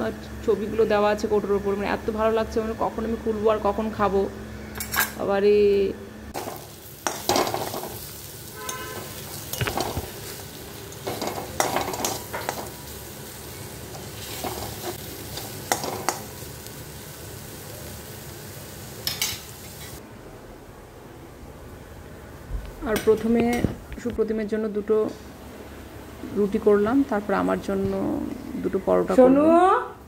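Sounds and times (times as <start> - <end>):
oil sizzling: 6.3 - 20.0.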